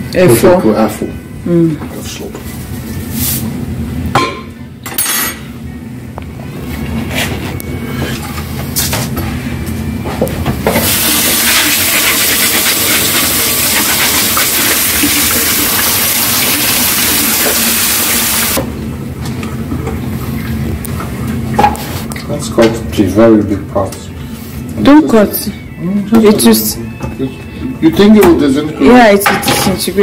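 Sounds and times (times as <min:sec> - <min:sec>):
tap water running into sink: 0:10.7 - 0:18.6.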